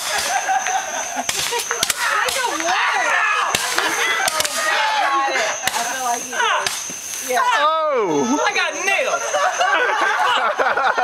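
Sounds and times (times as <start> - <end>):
roman candles popping: 0.0 - 2.9, 3.5 - 7.3
voices calling out: 0.0 - 11.0.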